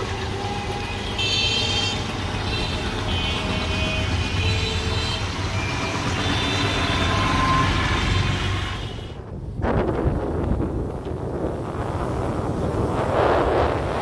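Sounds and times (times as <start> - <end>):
wind rushing over microphone: 7.9 - 14.0.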